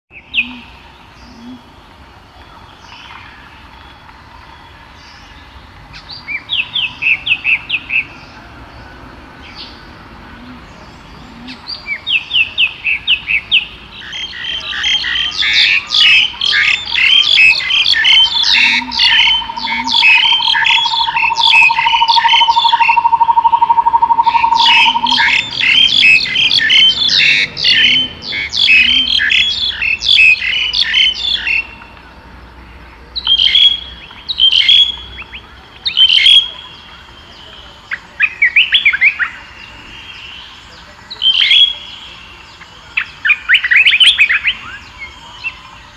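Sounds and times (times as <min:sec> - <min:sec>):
songbirds chirping: 0:00.1 - 0:45.9
low even bird trill: 0:14.0 - 0:31.7.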